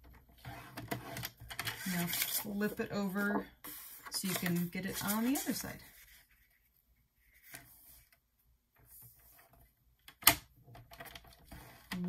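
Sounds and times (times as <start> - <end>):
cardstock rustling: 1.7 - 6.5.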